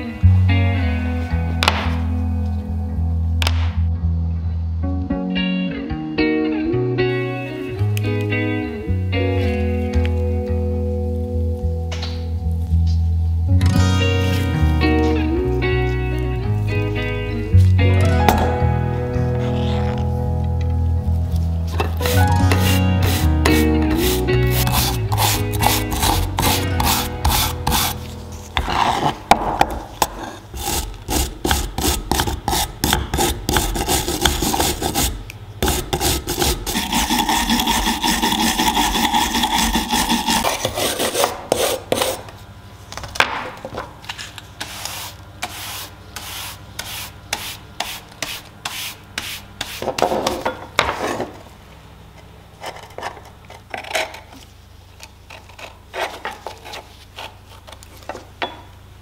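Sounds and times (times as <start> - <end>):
hand brush scrubbing rust off iron: 22.0 - 29.3, 30.0 - 42.2, 44.6 - 50.3.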